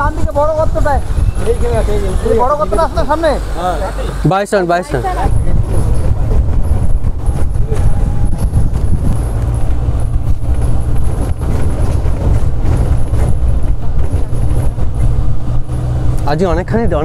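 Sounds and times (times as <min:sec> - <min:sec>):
jeep engine and road rumble: 0:00.0 - 0:17.0
knocks and rattles from bumps: 0:05.3 - 0:17.0.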